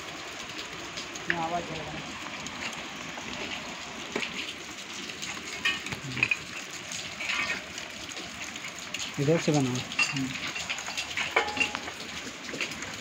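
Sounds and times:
rain on a steel deck: 0.0s - 13.0s
metallic clinks and knocks: 9.9s - 12.0s.

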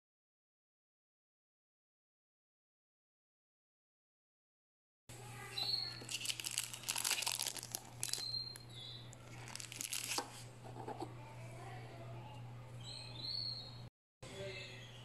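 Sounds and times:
cookies clattering in glass bowl: 6.0s - 8.4s, 9.3s - 10.4s.

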